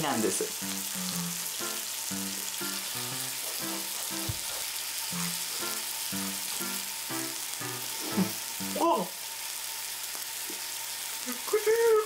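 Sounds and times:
meat sizzling on a grill: 0:00.0 - 0:12.0
background music of pitched notes: 0:00.6 - 0:04.5, 0:05.1 - 0:09.1.

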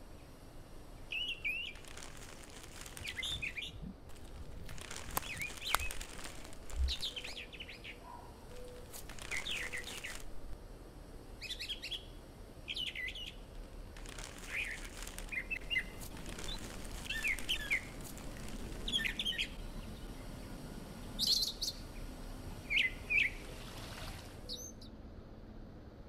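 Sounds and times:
faint steady hiss: 0:00.0 - 0:26.0
birds chirping: 0:01.1 - 0:10.6, 0:12.7 - 0:22.0.

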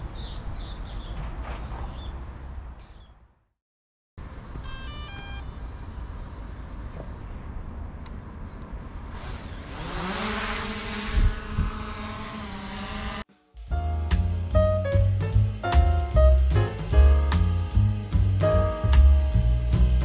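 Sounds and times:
short beeps: 0:04.6 - 0:06.0
drone propeller whine: 0:09.9 - 0:13.2.

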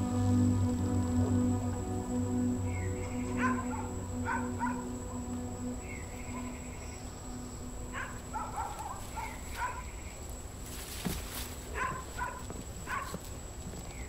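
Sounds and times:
dog barking in high yaps: 0:07.9 - 0:09.9, 0:11.7 - 0:13.2
brief rustle: 0:10.6 - 0:14.0.

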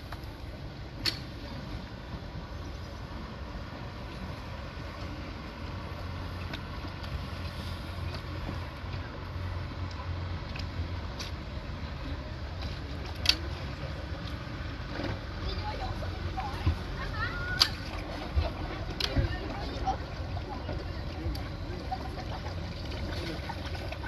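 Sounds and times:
boat engine humming: 0:00.0 - 0:24.0.

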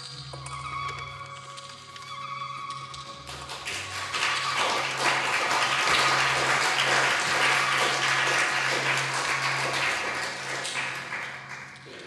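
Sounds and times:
audience applauding: 0:03.3 - 0:12.0.

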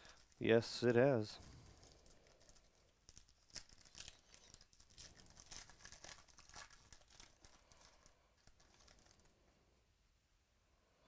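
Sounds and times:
foil wrapper tearing and crinkling: 0:01.4 - 0:09.3.

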